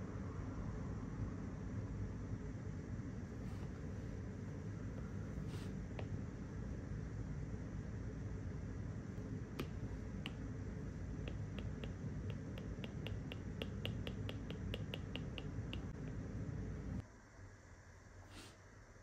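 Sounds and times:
steady low hum: 0:00.0 - 0:19.0
stylus tapping on glass screen: 0:09.2 - 0:16.2.

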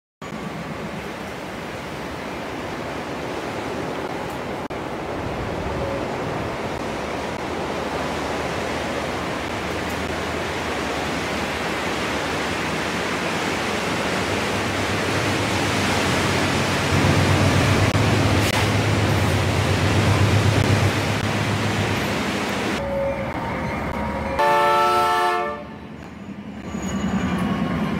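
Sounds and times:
train hum: 0:00.2 - 0:27.9.

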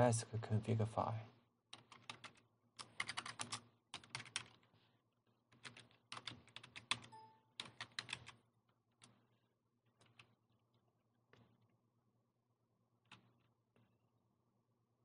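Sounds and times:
keyboard typing clicks: 0:01.8 - 0:04.6, 0:05.6 - 0:08.4.

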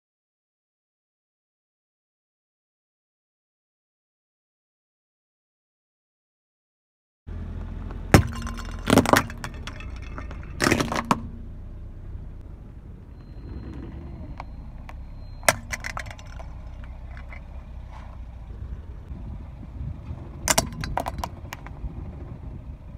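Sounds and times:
car rumble: 0:07.3 - 0:22.9
cups cracking under tyre: 0:07.5 - 0:19.2, 0:20.0 - 0:22.3
fragments clicking: 0:08.2 - 0:11.4, 0:14.8 - 0:18.1, 0:20.5 - 0:21.7.

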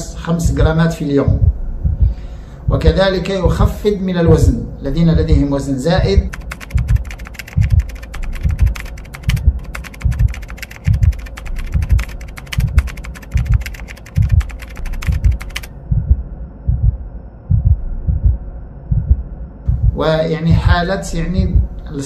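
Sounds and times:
low repeating thump: 0:00.4 - 0:03.7, 0:05.2 - 0:21.8
keyboard typing clicks: 0:06.3 - 0:15.7.

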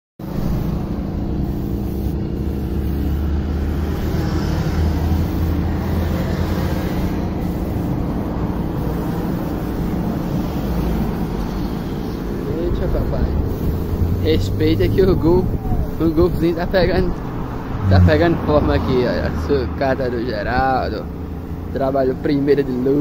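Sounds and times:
air compressor humming: 0:00.2 - 0:11.2, 0:13.4 - 0:16.0
air hissing from spray gun: 0:00.2 - 0:16.8.

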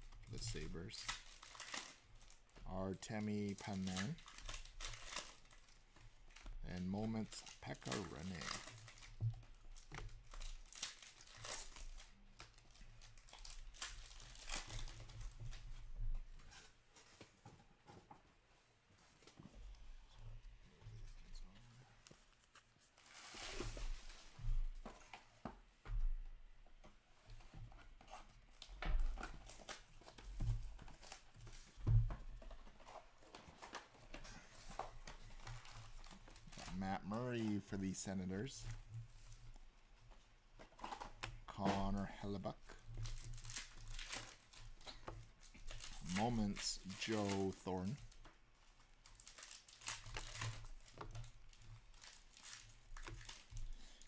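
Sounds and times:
trading cards rustling: 0:00.4 - 0:09.2, 0:40.6 - 0:48.2.

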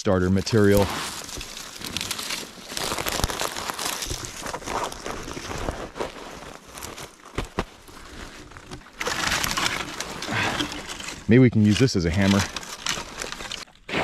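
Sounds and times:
dry grass rustling and crackling: 0:00.1 - 0:14.0.

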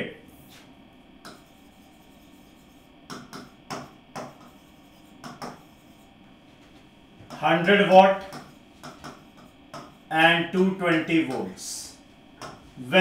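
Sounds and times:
faint electrical hum: 0:00.0 - 0:13.0
pen tapping on glass: 0:05.2 - 0:05.6, 0:08.2 - 0:10.0.

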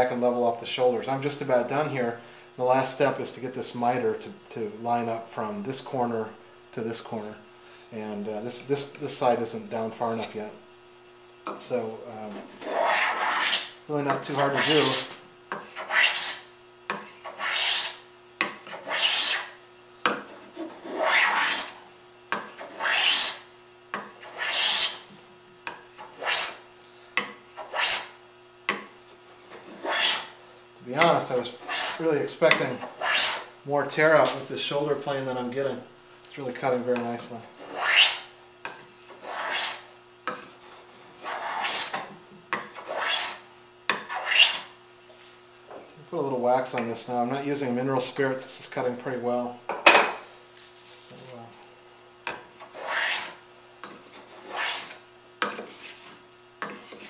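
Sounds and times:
hand plane rasping on wood: 0:12.4 - 0:16.4, 0:17.2 - 0:18.0, 0:18.6 - 0:19.5, 0:20.3 - 0:21.8, 0:22.6 - 0:23.4, 0:24.2 - 0:25.0, 0:26.2 - 0:26.6, 0:27.6 - 0:28.1, 0:29.5 - 0:30.3, 0:31.4 - 0:32.0, 0:32.8 - 0:33.5, 0:37.6 - 0:38.3, 0:39.1 - 0:39.9, 0:40.8 - 0:42.1, 0:42.7 - 0:44.7, 0:52.7 - 0:53.4, 0:54.2 - 0:57.0.

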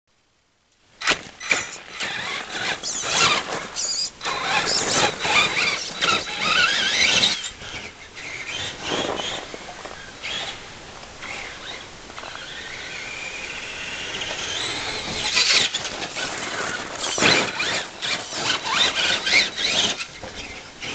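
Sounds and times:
toy truck motor whining: 0:01.0 - 0:10.6, 0:11.2 - 0:20.9
tyres churning snow: 0:01.0 - 0:20.9.

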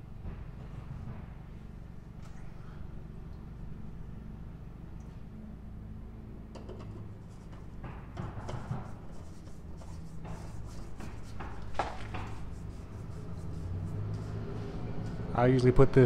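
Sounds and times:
steady low hum: 0:00.0 - 0:16.0
threads scraping and rubbing: 0:06.8 - 0:15.2.

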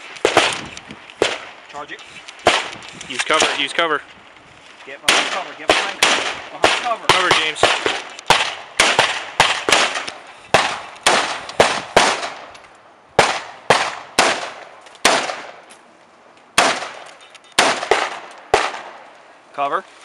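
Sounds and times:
rifle gunshots: 0:00.0 - 0:01.6, 0:02.4 - 0:03.7, 0:05.0 - 0:12.5, 0:13.2 - 0:15.6, 0:16.6 - 0:19.0.

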